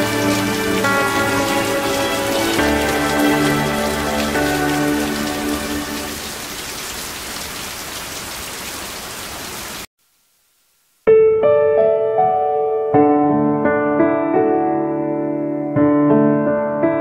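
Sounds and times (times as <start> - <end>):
solo piano: 0.0 - 6.3, 11.1 - 17.0
steady rain hiss: 0.0 - 11.2.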